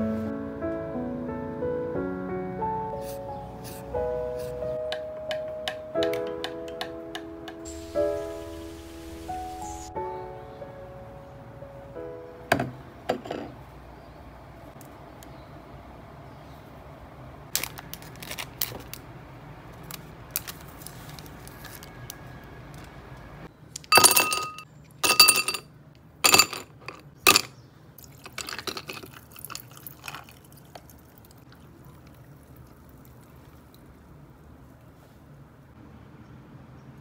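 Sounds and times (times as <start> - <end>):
ice cubes clinking into glass: 23.9 - 25.6, 26.2 - 30.4
liquid pouring over ice: 28.0 - 34.0.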